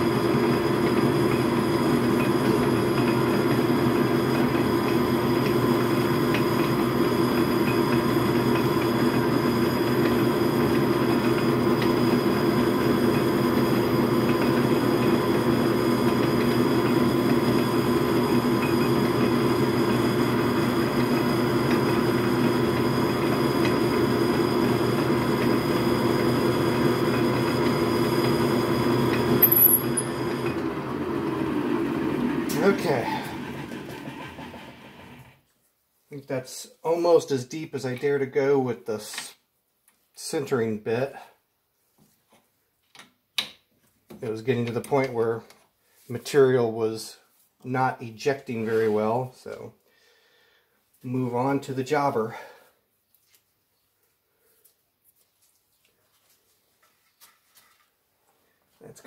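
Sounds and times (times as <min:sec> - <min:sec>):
metal lathe running: 0:00.0 - 0:35.4.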